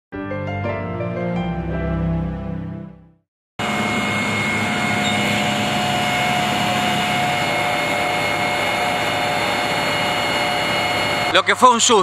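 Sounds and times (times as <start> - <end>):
whining tones: 3.6 - 11.6
fire engine motor humming: 3.6 - 11.7.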